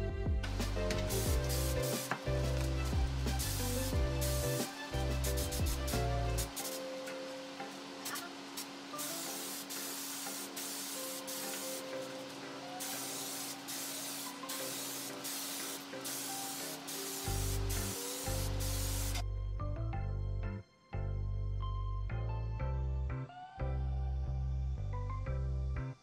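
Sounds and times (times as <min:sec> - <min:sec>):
background music with heavy bass: 0:00.0 - 0:06.6, 0:17.3 - 0:26.0
paint spray gun hissing: 0:00.5 - 0:19.2.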